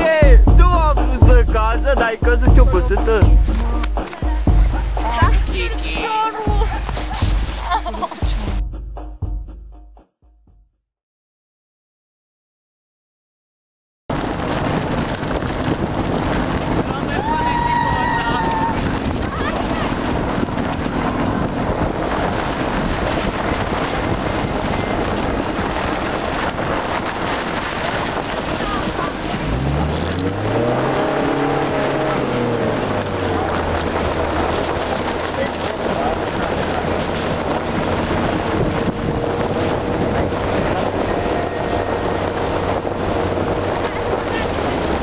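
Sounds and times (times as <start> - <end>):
car road noise on snow: 0.0 - 8.4, 14.1 - 45.0
wind rushing on microphone: 14.1 - 45.0.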